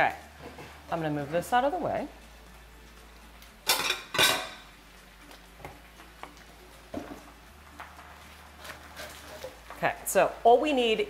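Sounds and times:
dishes clattering into sink: 3.7s - 4.6s.

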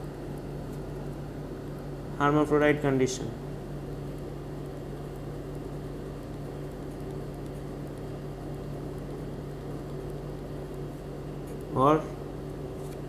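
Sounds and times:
low background hum: 0.0s - 13.0s.

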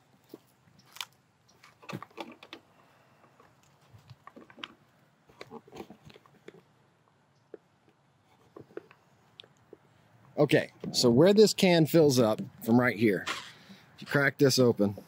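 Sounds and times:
clicks and knocks of objects: 0.8s - 6.7s.

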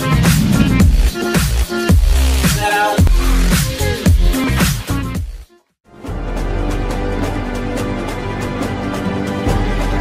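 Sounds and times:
electronic dance music: 0.0s - 5.2s.

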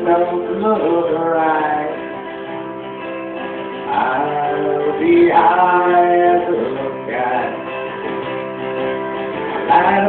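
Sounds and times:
man singing: 0.0s - 2.6s, 3.8s - 8.1s, 9.6s - 10.0s
acoustic guitar blues: 0.0s - 10.0s.

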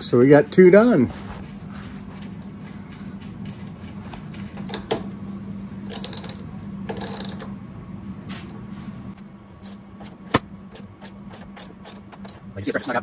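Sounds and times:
low steady hum: 0.0s - 13.0s
ratchet wrench clicking: 10.8s - 13.0s.

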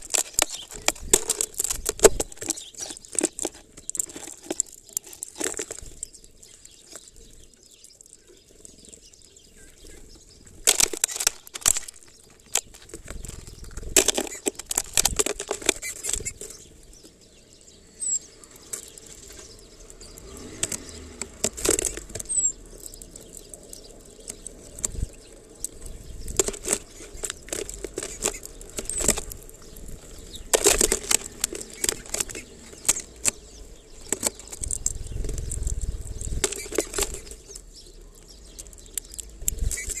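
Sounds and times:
birds pecking and tapping: 0.0s - 40.0s
faint high chirps: 21.8s - 24.2s.

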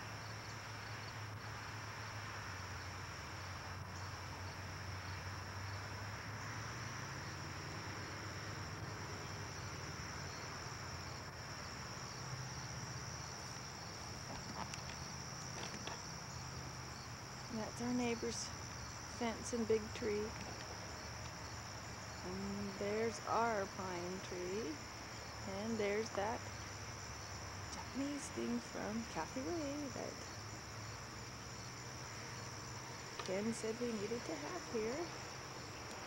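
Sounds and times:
crickets trilling: 0.0s - 36.0s
low steady hum: 9.9s - 36.0s.

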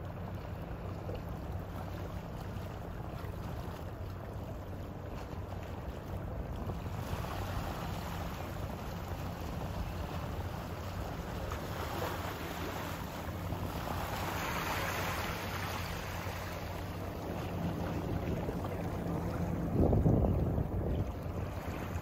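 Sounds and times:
steady low hum: 0.0s - 22.0s
waves lapping: 0.0s - 22.0s
wind on microphone: 17.2s - 22.0s.

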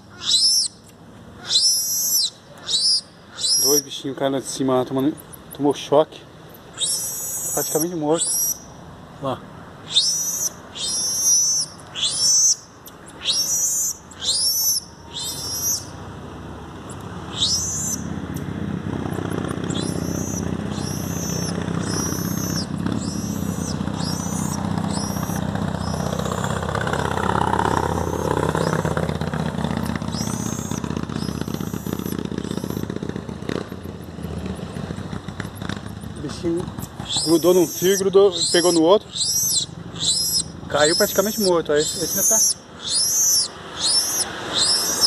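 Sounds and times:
marmoset high-pitched calls: 0.0s - 4.0s, 6.8s - 8.8s, 9.8s - 16.0s, 16.9s - 18.1s, 19.3s - 26.5s, 27.7s - 29.0s, 30.1s - 32.9s, 36.8s - 45.0s
vehicle passing: 0.0s - 45.0s.

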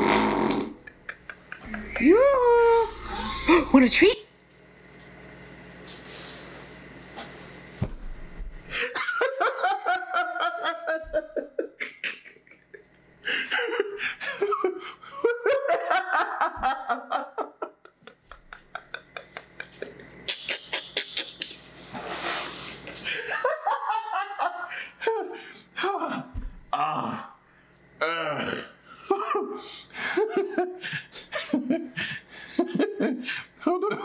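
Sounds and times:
man laughing hard: 0.7s - 2.6s, 8.7s - 21.6s, 23.0s - 26.4s, 29.0s - 34.0s.

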